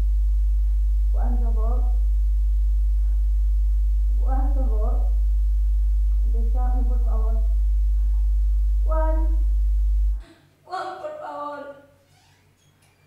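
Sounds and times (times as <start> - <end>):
loud low hum: 0.0 - 10.3.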